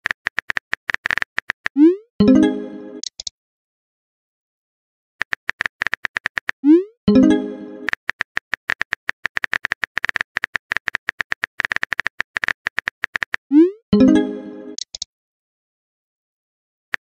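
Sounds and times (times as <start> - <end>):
message tone: 2.2 - 3.0, 6.7 - 8.0, 13.6 - 14.8.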